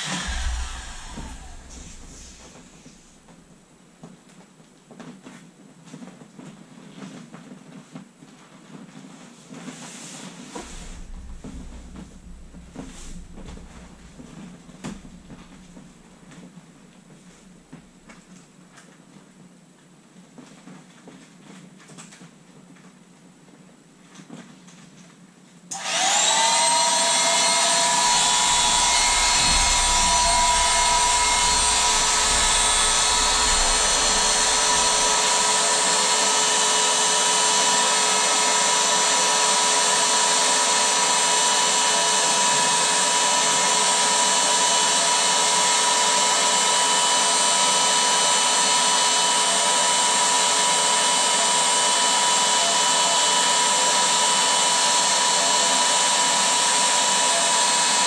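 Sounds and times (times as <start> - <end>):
low rumble: 0.0 - 3.3, 10.6 - 16.3, 27.4 - 36.4
electric air pump whine: 0.0 - 3.4, 10.5 - 18.2, 25.7 - 58.0.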